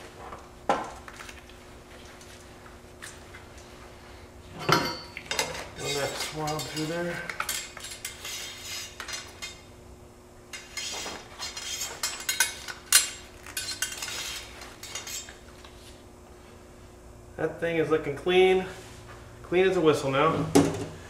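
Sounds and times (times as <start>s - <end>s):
cleaning rod scraping in gun barrel: 5.8s - 9.6s, 10.6s - 12.7s, 13.5s - 15.4s.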